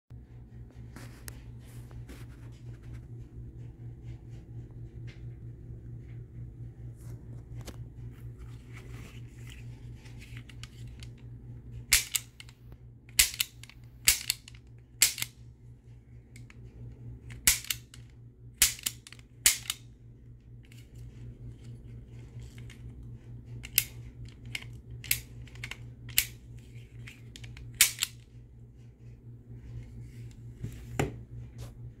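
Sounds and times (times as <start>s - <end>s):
toy cap gun hammer snapping: 11.9s - 12.5s, 13.2s - 15.3s, 18.6s - 19.8s.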